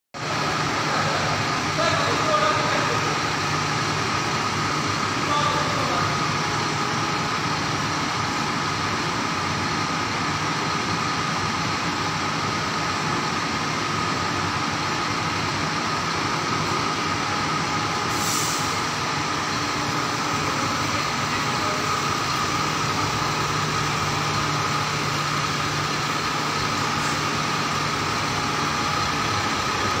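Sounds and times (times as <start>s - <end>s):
diesel engine idling with whine: 0.2s - 30.0s
short hiss: 18.1s - 18.8s.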